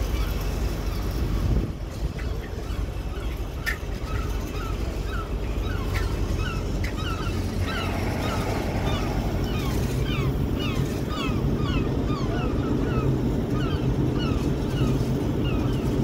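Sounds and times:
birds chirping: 0:00.0 - 0:16.0
steady low rumble: 0:00.0 - 0:16.0.

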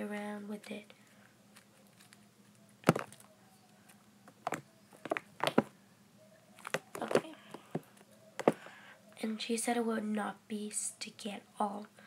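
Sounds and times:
sticky slime popping: 0:02.8 - 0:03.2.

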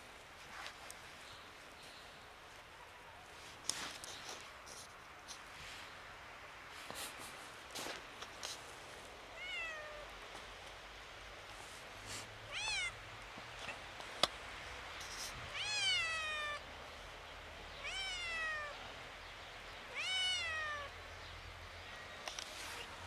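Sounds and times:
kitten meowing: 0:09.4 - 0:10.1, 0:12.5 - 0:13.0, 0:15.5 - 0:16.6, 0:17.8 - 0:18.8, 0:19.9 - 0:20.9.

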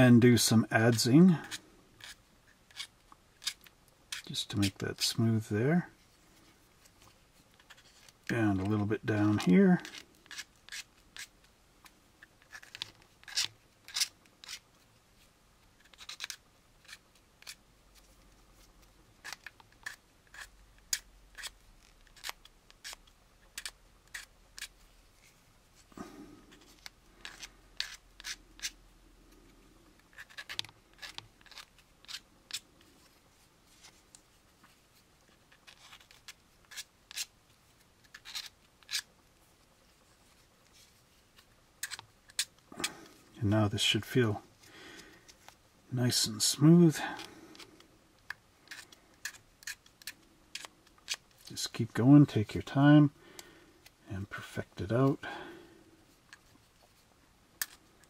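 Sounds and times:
knife blade scraping plastic: 0:00.9 - 0:04.8, 0:07.6 - 0:11.4, 0:12.2 - 0:14.6, 0:15.8 - 0:17.6, 0:19.2 - 0:24.8, 0:26.0 - 0:28.8, 0:30.0 - 0:32.7, 0:35.3 - 0:37.3, 0:38.0 - 0:39.1, 0:41.4 - 0:43.2, 0:47.0 - 0:52.6.

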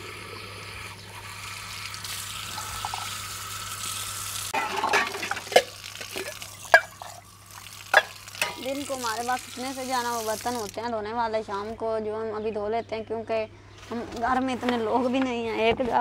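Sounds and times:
tap water running into bottle: 0:01.2 - 0:10.8
metal cups and utensils clinking: 0:04.6 - 0:07.2, 0:07.9 - 0:08.7.

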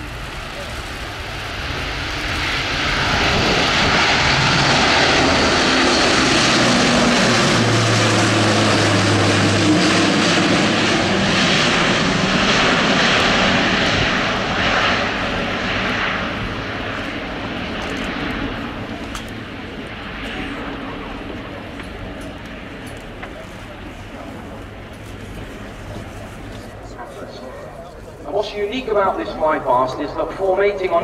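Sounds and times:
low drone: 0:00.0 - 0:19.9
loud propeller roar: 0:00.0 - 0:31.0.

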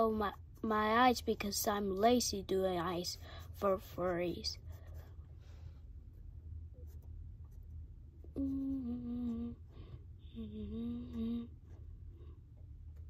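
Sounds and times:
faint low background hum: 0:00.0 - 0:13.0
person humming: 0:08.3 - 0:11.6.

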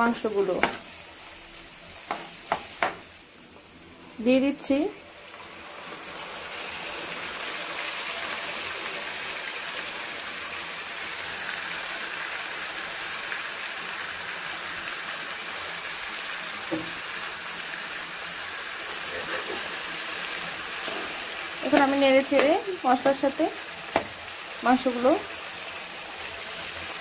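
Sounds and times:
chicken sizzling in oil: 0:00.0 - 0:27.0
knock: 0:02.1 - 0:03.0, 0:16.7 - 0:17.0.

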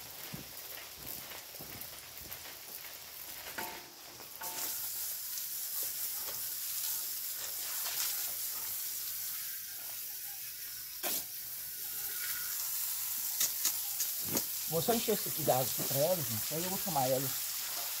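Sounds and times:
water from hose running into container: 0:11.2 - 0:18.0.

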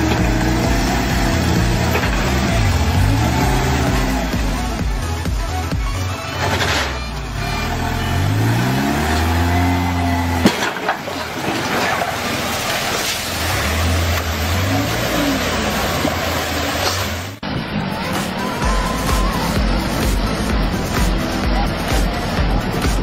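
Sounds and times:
forklift engine revving: 0:00.0 - 0:23.0
water pouring: 0:10.5 - 0:14.8.

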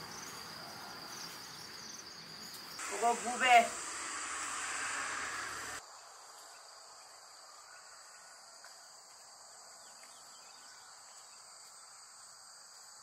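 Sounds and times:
faint crickets chirping: 0:00.0 - 0:13.0.

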